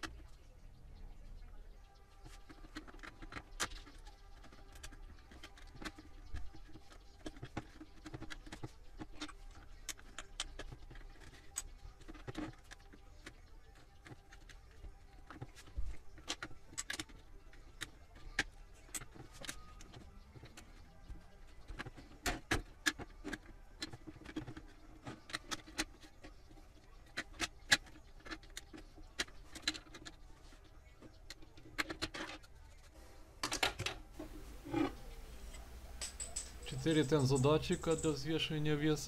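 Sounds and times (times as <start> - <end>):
plastic scraping and handling: 2.1 - 33.0.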